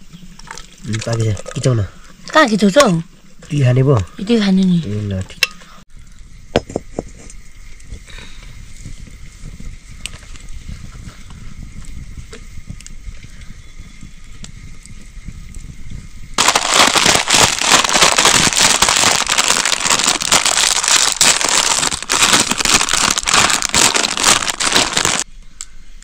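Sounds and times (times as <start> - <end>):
food sizzling in hot oil: 16.4 - 25.2.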